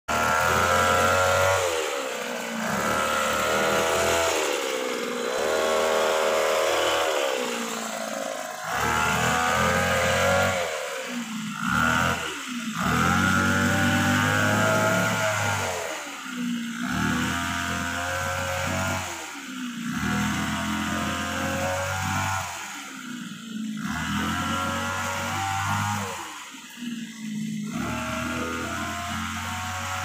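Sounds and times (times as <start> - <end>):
hedge trimmer engine revving: 0.1 - 30.0.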